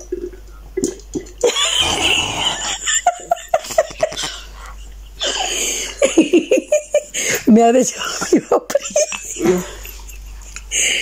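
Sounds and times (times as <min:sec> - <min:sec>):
person laughing: 0:01.4 - 0:07.4, 0:08.3 - 0:11.0.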